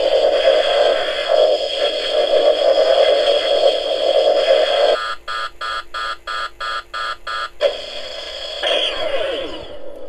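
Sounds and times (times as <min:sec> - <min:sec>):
pulsing electronic warning beep: 0:04.9 - 0:07.6.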